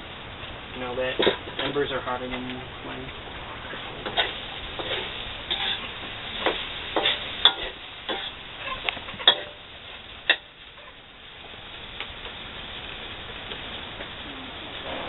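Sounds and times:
faint sizzle: 0:00.0 - 0:15.0
metal spatula scraping a wok: 0:04.0 - 0:09.6.

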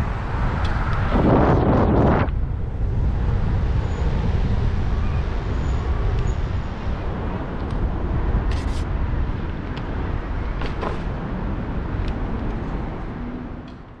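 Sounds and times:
wind buffeting microphone: 0:00.0 - 0:13.6
tyre noise on pavement: 0:06.9 - 0:13.1.

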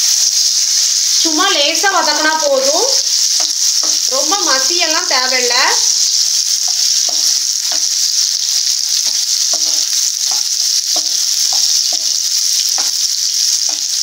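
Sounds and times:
banana slices sizzling in a pan: 0:00.0 - 0:14.0
spatula scraping and tapping a pan: 0:02.9 - 0:04.7, 0:05.8 - 0:14.0.

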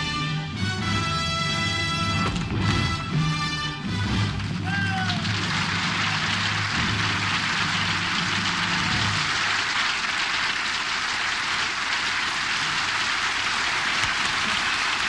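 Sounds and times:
low music: 0:00.0 - 0:09.4
audience applauding: 0:03.9 - 0:15.0.

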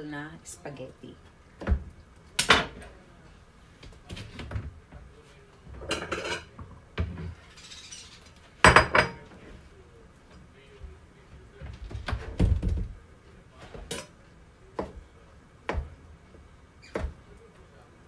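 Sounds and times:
knife and plate knocking and clinking: 0:08.6 - 0:09.3.

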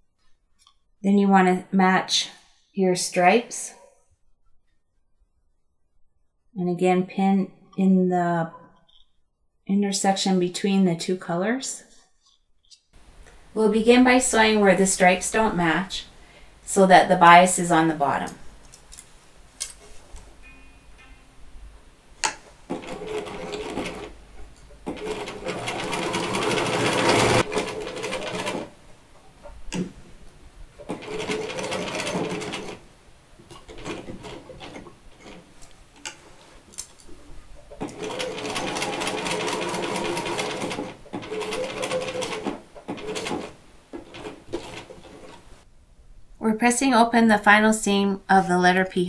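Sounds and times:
electric sewing machine stitching: 0:22.7 - 0:24.2, 0:24.8 - 0:28.7, 0:30.8 - 0:32.8, 0:37.8 - 0:45.4.

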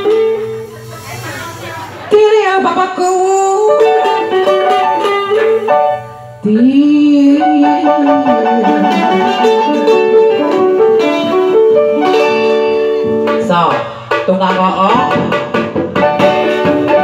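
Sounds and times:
electronic organ music: 0:02.9 - 0:13.6, 0:15.8 - 0:17.0.

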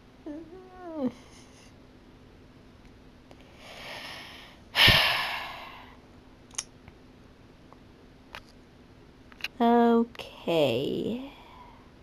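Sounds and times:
person sighing: 0:04.8 - 0:06.0.

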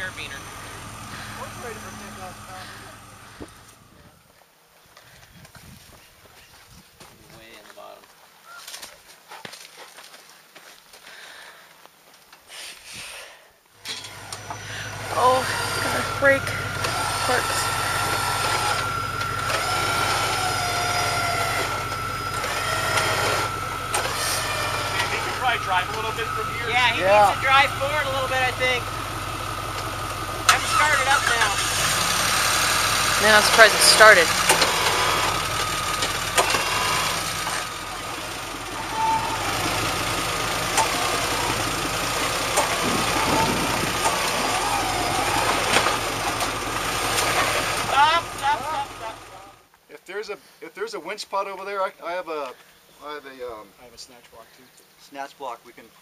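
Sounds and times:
electric winch motor whining: 0:00.0 - 0:04.0, 0:13.8 - 0:49.6
vehicle engine running low: 0:00.0 - 0:04.4, 0:13.8 - 0:49.7.

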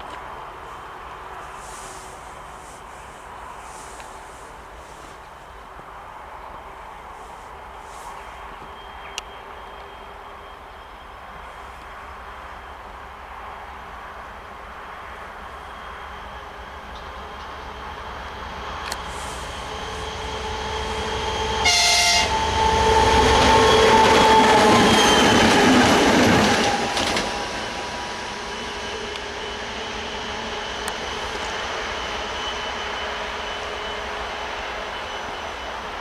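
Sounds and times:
diesel locomotive passing: 0:00.0 - 0:36.0
locomotive horn blast: 0:20.6 - 0:25.2.

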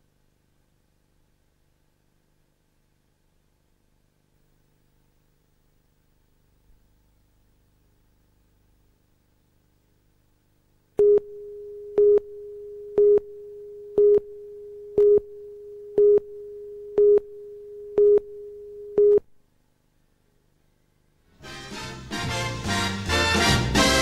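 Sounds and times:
steady tone: 0:11.0 - 0:19.2.

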